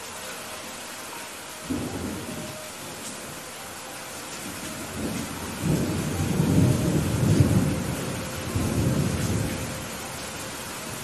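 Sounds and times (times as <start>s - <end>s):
heavy rain: 0.0s - 11.0s
thunder rumbling: 1.6s - 3.1s, 4.4s - 11.0s.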